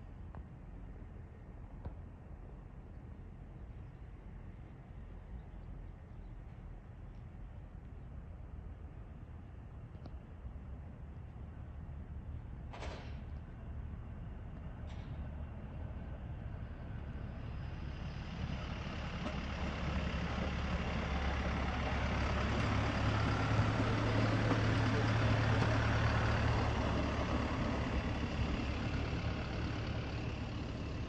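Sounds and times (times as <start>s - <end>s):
truck running on rail wheels: 10.6s - 31.0s.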